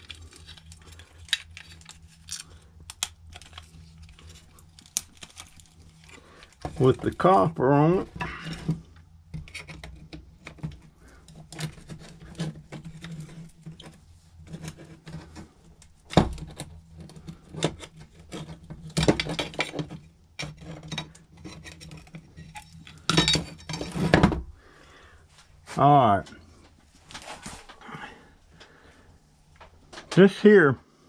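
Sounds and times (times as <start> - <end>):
steady low hum: 0.0 - 31.0
metal parts clinking on workbench: 22.5 - 23.9.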